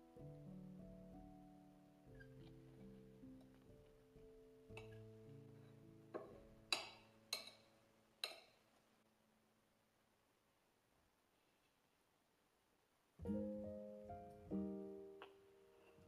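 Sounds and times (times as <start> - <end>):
soft background music: 0.0 - 7.8, 13.2 - 16.0
metal spoon tapping ceramic plate: 6.2 - 8.6.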